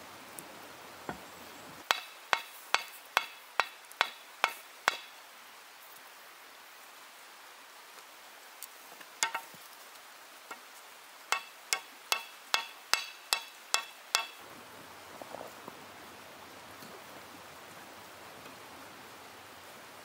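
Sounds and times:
steady hiss: 0.0 - 20.0
hammer striking hot iron: 1.9 - 5.1, 9.2 - 9.5, 11.3 - 14.4.

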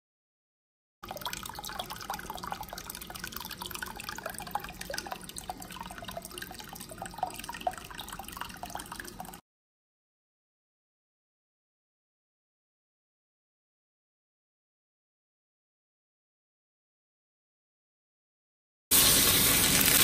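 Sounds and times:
water bubbling and gurgling: 1.0 - 9.4.

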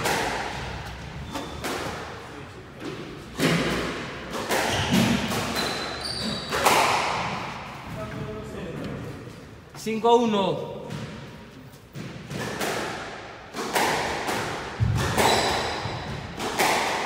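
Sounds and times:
racket striking squash ball: 0.0 - 2.2, 2.9 - 7.9, 10.8 - 17.0.

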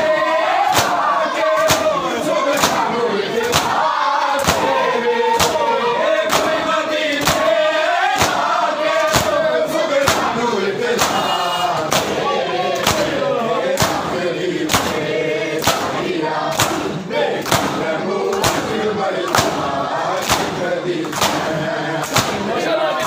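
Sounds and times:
crowd of men chanting: 0.0 - 23.0
hands slapping chests: 0.7 - 1.0, 1.6 - 2.0, 2.6 - 3.8, 4.4 - 4.8, 5.4 - 5.6, 6.3 - 6.6, 7.2 - 7.6, 8.2 - 9.4, 10.0 - 10.4, 11.0 - 11.3, 11.9 - 12.2, 12.8 - 15.0, 15.6 - 22.5.

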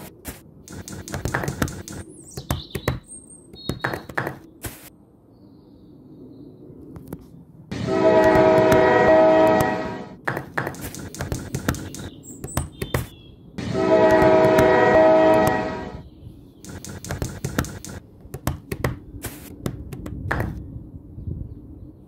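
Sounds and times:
sharp clicks and taps: 0.2 - 4.9, 9.6 - 13.1, 16.6 - 20.6
train horn blasts: 7.7 - 10.2, 13.6 - 16.1.

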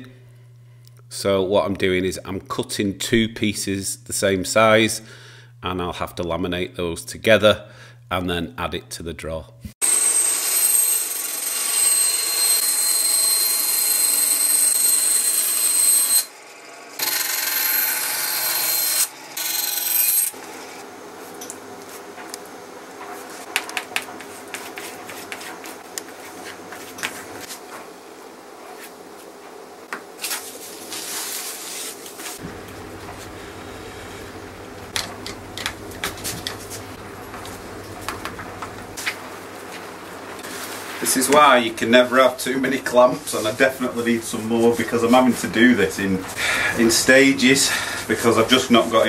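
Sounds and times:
bandsaw cutting plywood: 9.8 - 20.9.

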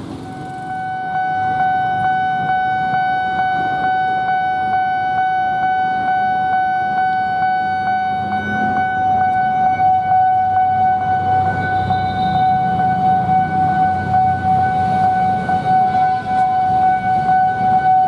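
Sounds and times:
level crossing alarm tone: 0.0 - 18.0.

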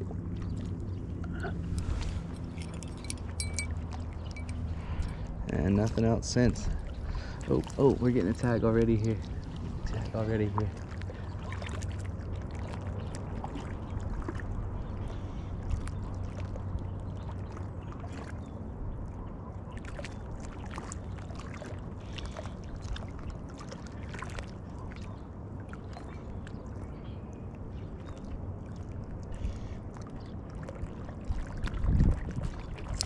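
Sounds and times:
small waves lapping: 0.0 - 33.0
wind rumble on microphone: 0.0 - 33.0.

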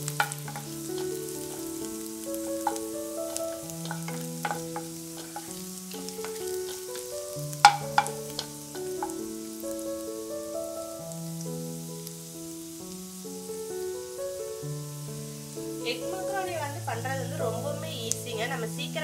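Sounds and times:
wooden spatula scraping pan: 0.0 - 9.2
garlic sizzling in hot oil: 0.0 - 19.0
soft background music: 0.0 - 19.0
sharp knocks: 7.6 - 9.2.

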